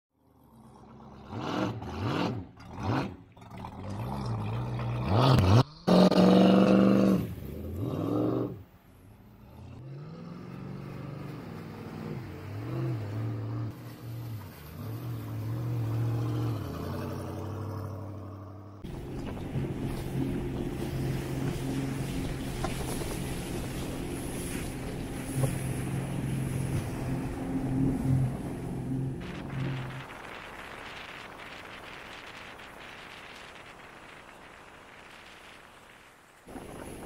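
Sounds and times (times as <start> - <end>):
motorboat engine revving: 0.4 - 8.6, 9.4 - 30.4.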